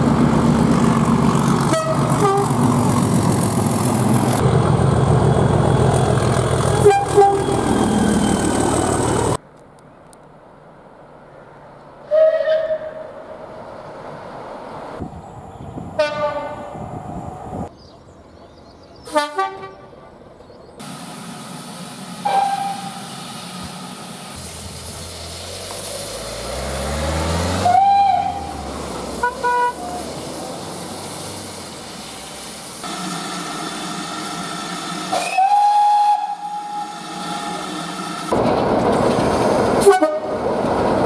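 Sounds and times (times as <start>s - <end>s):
diesel locomotive horn blasts: 1.6s - 2.7s, 6.7s - 8.3s, 16.0s - 16.8s, 19.1s - 19.9s, 22.2s - 23.0s, 27.5s - 28.5s, 29.2s - 30.0s, 35.1s - 37.8s, 39.8s - 40.4s
steam locomotive whistle: 6.8s - 8.4s, 12.1s - 13.1s, 22.2s - 23.0s, 27.6s - 28.5s, 33.0s - 38.0s, 39.8s - 40.3s
hissing steam: 20.8s - 27.6s, 28.9s - 38.3s.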